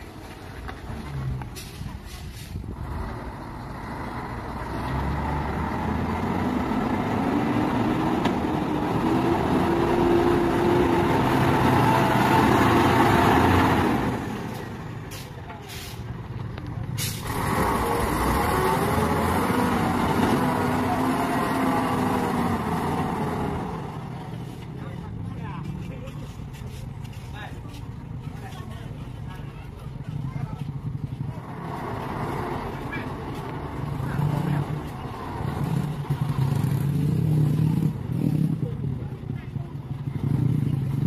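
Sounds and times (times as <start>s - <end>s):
diesel truck engine under load: 0.0s - 25.3s, 27.9s - 41.0s.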